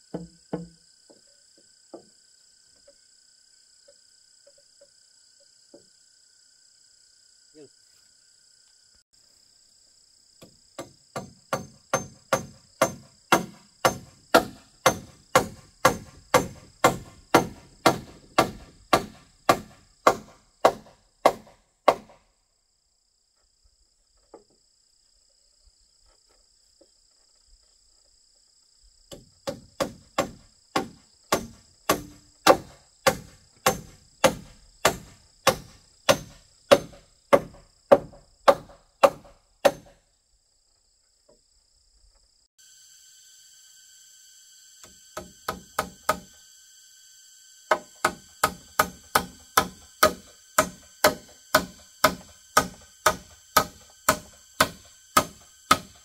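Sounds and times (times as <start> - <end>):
insects buzzing: 0.0 - 56.0
hammer blows on wood: 10.8 - 22.2, 47.7 - 56.0.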